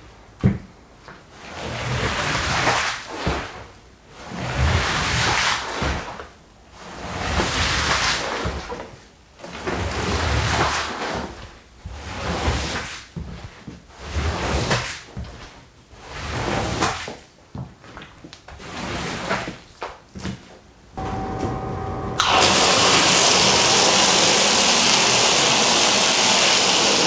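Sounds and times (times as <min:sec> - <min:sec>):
squeegee swishing on wet rug: 0:01.3 - 0:17.3, 0:18.0 - 0:19.8.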